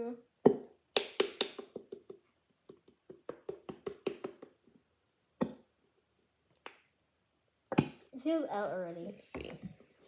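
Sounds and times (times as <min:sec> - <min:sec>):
hand tapping plastic bottle: 0:00.4 - 0:04.8.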